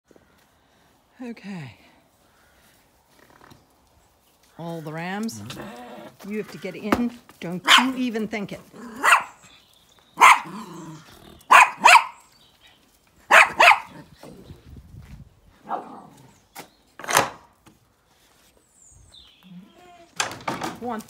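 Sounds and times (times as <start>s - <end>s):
small dog barking: 7.6s - 8.0s, 8.9s - 9.4s, 10.2s - 10.7s, 11.5s - 12.3s, 13.3s - 14.0s, 15.6s - 16.2s.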